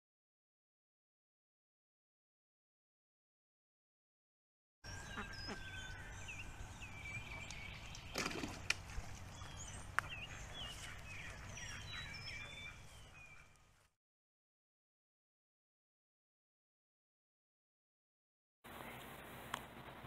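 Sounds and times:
birds chirping: 0:04.8 - 0:13.9, 0:18.7 - 0:19.6.

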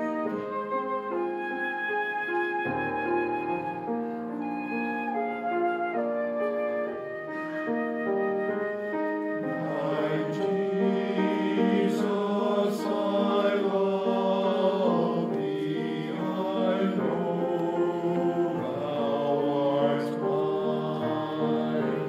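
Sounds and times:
church choir singing: 0:07.2 - 0:22.0.

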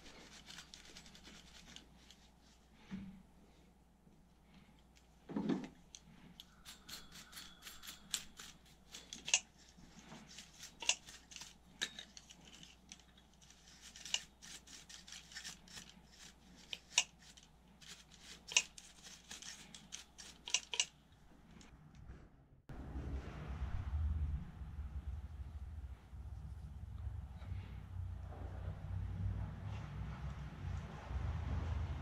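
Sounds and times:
brush scrubbing: 0:00.0 - 0:02.9, 0:06.0 - 0:21.7.

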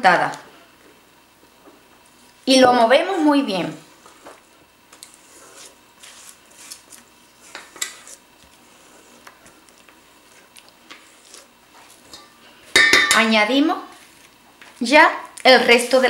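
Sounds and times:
spatula scraping a steel bowl: 0:07.4 - 0:09.3.

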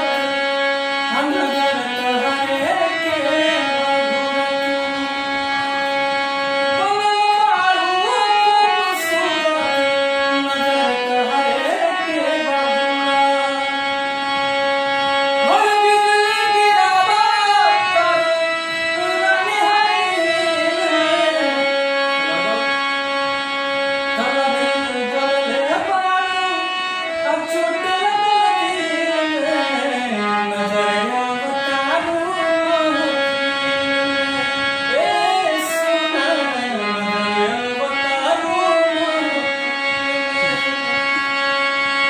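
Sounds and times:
man singing: 0:00.0 - 0:14.0, 0:15.3 - 0:22.8, 0:24.0 - 0:42.0
harmonium sustained notes: 0:00.0 - 0:42.0.

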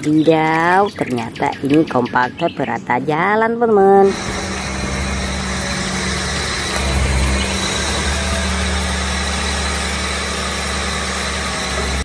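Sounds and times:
road roller diesel engine: 0:03.2 - 0:12.0.

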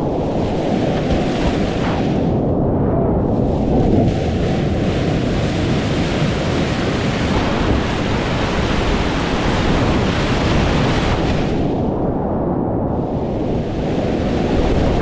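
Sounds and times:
water splashing over boat: 0:00.0 - 0:02.3, 0:03.4 - 0:11.6.

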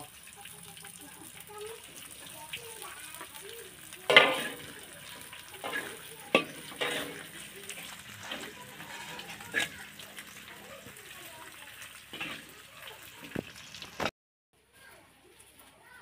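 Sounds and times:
oil sizzling in a wok: 0:00.0 - 0:16.0
metal utensils scraping a wok: 0:03.2 - 0:14.1.

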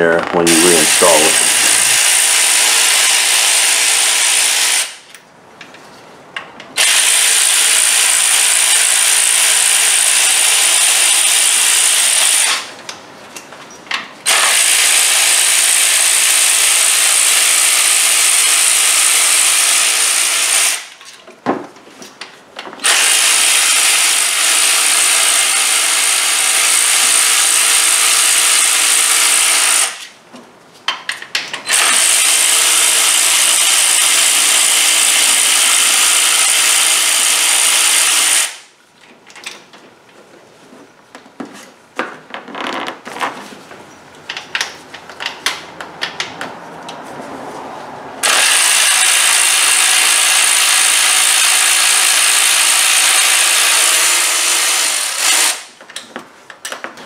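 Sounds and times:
power ratchet running: 0:00.5 - 0:05.0, 0:06.8 - 0:12.7, 0:14.3 - 0:20.9, 0:22.8 - 0:30.0, 0:31.7 - 0:38.6, 0:48.2 - 0:55.7.

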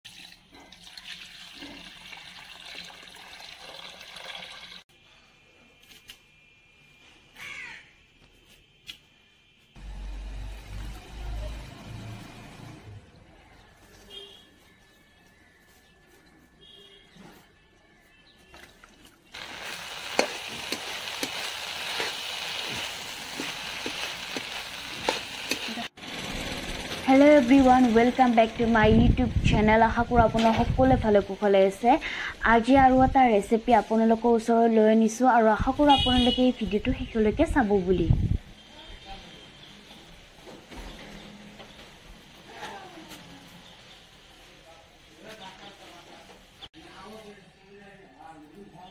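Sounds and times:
water pouring into a steel bowl: 0:00.0 - 0:04.8
vegetables sizzling in a pan: 0:19.3 - 0:26.2.

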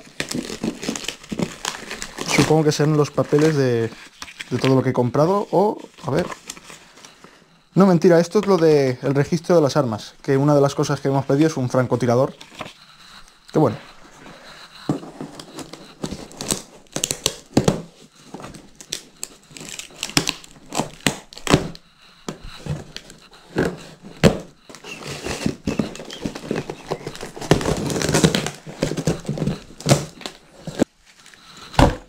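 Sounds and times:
knife slitting packing tape: 0:00.0 - 0:02.4
cardboard crinkling and tearing: 0:00.0 - 0:07.2, 0:11.3 - 0:32.0.

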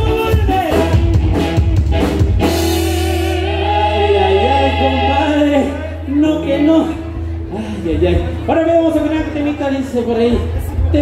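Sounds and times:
steady bass note: 0:00.0 - 0:11.0
band playing sustained chord: 0:00.9 - 0:10.0.

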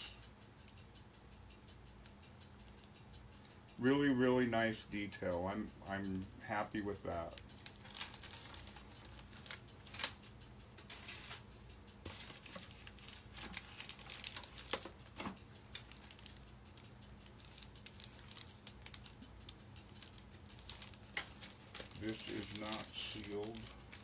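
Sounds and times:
sharp light clicks: 0:00.0 - 0:11.0, 0:11.9 - 0:24.0
plastic bags crinkling: 0:07.6 - 0:10.2, 0:12.1 - 0:15.0, 0:15.7 - 0:16.4, 0:17.4 - 0:19.2, 0:19.9 - 0:24.0.

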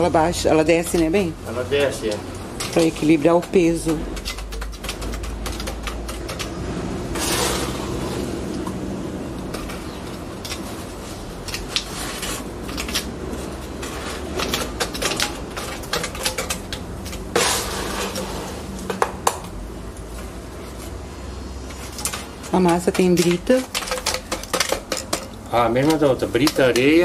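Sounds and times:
metal trowel scraping concrete: 0:02.1 - 0:08.6, 0:09.5 - 0:18.9.

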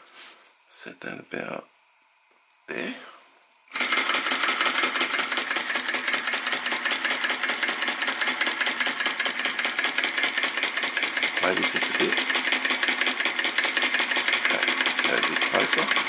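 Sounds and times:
small engine mechanical clatter: 0:03.7 - 0:16.0.

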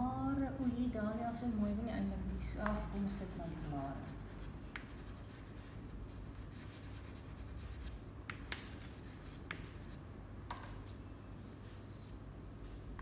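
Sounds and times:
pastel scratching on paper: 0:03.9 - 0:08.0, 0:08.6 - 0:10.0.

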